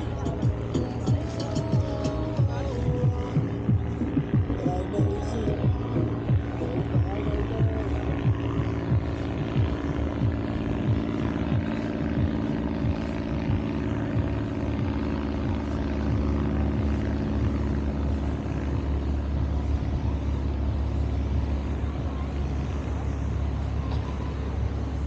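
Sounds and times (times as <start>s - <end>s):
low rumble: 0.0s - 25.0s
propeller plane engine droning: 0.0s - 25.0s.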